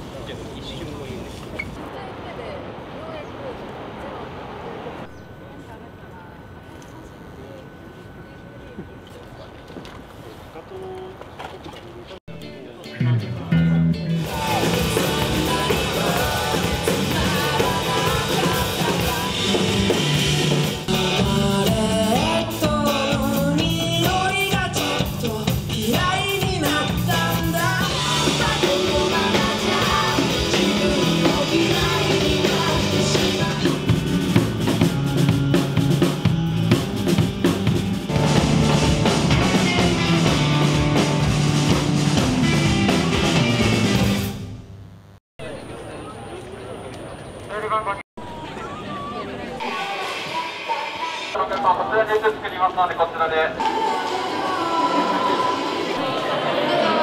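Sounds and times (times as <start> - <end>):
drum kit: 12.3 - 44.6
bass: 12.3 - 45.6
person singing: 14.1 - 34.0, 53.6 - 57.0.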